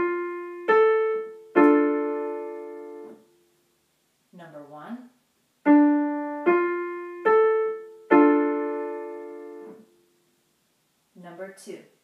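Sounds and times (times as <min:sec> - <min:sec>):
piano chord: 0:00.0 - 0:03.3, 0:05.7 - 0:10.0.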